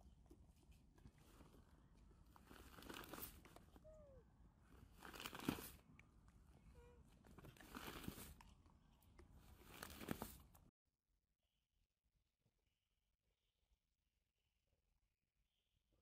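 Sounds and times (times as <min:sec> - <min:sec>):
plastic sack crinkling: 0:02.3 - 0:03.5, 0:04.8 - 0:05.8, 0:07.3 - 0:08.4, 0:09.4 - 0:10.6.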